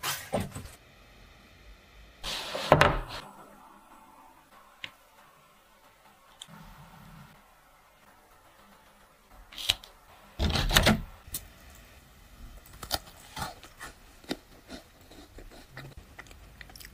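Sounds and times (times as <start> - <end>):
cookie crunching: 12.6 - 16.9.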